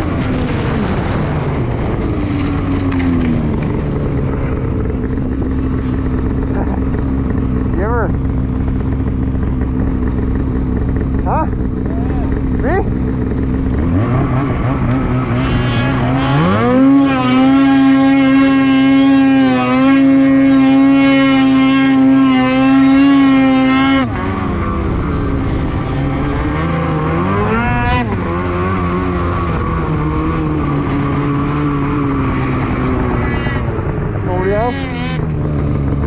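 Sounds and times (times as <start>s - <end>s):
snowmobile engine accelerating: 0.0s - 36.0s.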